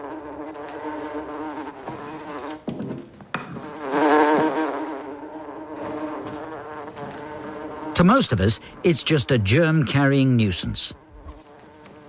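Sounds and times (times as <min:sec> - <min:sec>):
housefly buzzing: 0:00.0 - 0:02.8, 0:03.4 - 0:12.0
sharp knocks: 0:02.6 - 0:04.5.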